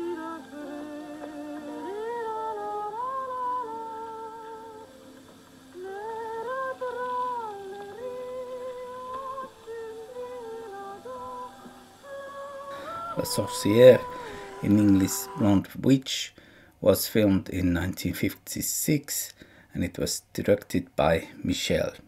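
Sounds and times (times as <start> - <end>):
high voice humming a melody: 5.8 - 15.6.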